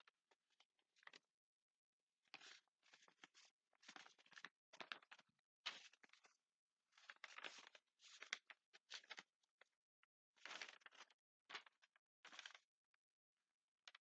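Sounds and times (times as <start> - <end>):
paper pages rustling: 2.4 - 9.3, 10.4 - 12.6.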